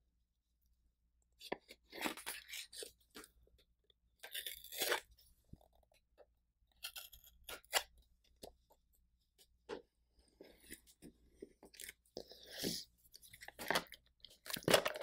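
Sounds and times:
plastic wrap crinkling and tearing: 13.4 - 15.0.

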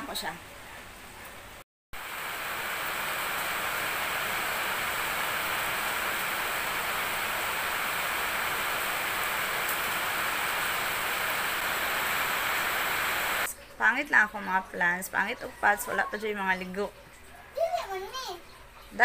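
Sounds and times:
steady hiss: 2.0 - 13.5.

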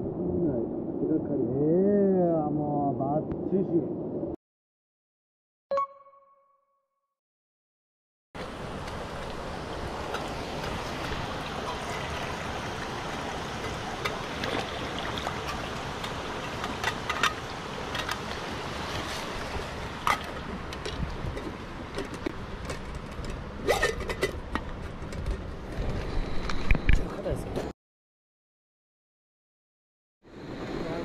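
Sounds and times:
metal pot clinks and knocks: 20.0 - 25.4.

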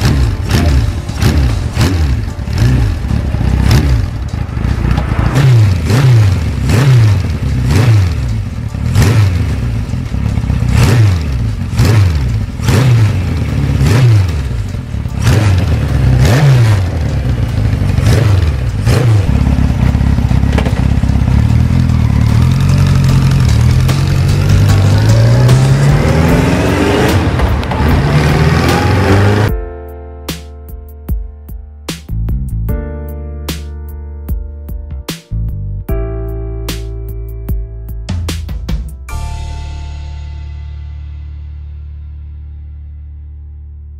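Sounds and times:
motorcycle engine revving: 0.0 - 29.5.

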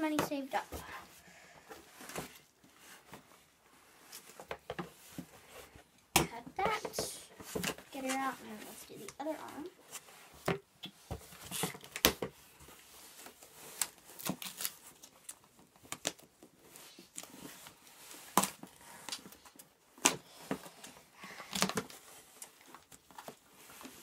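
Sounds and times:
packaging rustling and scraping: 11.2 - 24.0.

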